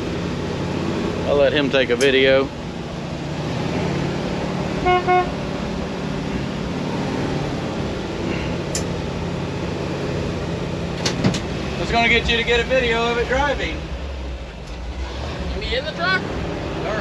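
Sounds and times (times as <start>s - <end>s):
truck engine idling: 0.0s - 17.0s
truck horn toots: 4.7s - 5.4s.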